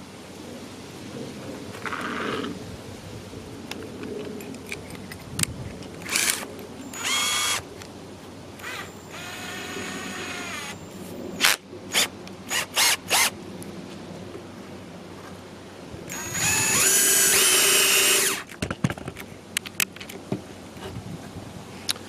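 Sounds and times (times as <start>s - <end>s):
cordless drill motor spinning: 6.0s - 7.7s, 8.6s - 13.3s, 16.1s - 18.5s.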